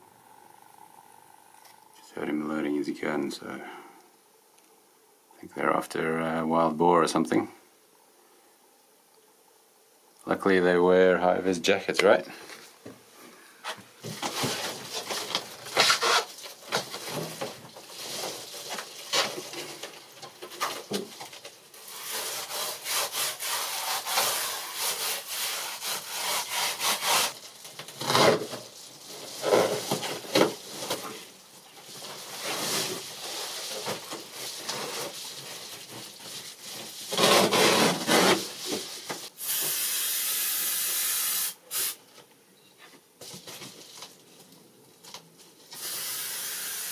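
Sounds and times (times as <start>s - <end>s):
foil insulation crinkling: 13.6s - 39.4s, 43.2s - 45.8s
aerosol spray can hissing: 39.3s - 42.0s, 45.8s - 46.9s.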